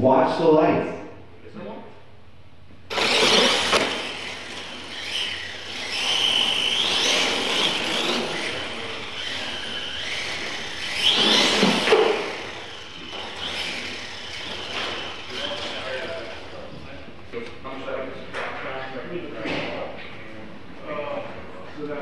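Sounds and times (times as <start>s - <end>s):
toy truck motors whining: 2.9s - 16.6s.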